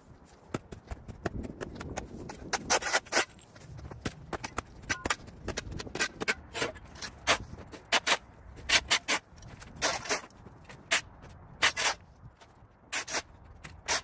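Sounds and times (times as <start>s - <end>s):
hand tool scraping dirt: 2.4s - 3.5s, 5.9s - 12.1s, 12.9s - 14.0s.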